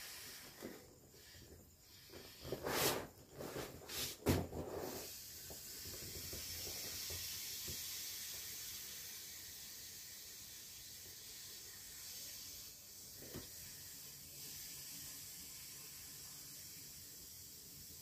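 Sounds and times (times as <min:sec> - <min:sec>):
air hissing out of valve: 0:00.0 - 0:18.0
vinyl rubbing: 0:02.0 - 0:05.2.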